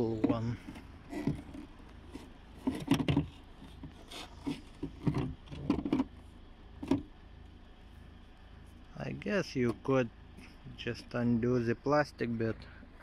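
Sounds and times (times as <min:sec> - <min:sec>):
hard plastic scraping and knocking: 0:00.0 - 0:06.1, 0:06.8 - 0:07.1.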